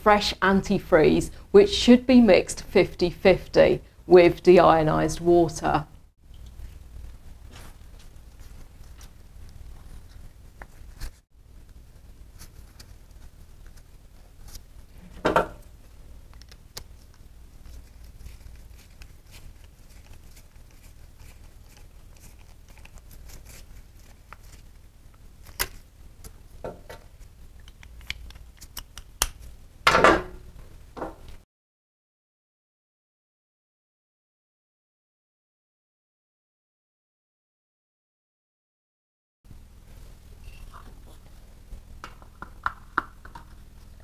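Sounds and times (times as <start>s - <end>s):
low steady hum: 0.0s - 31.4s.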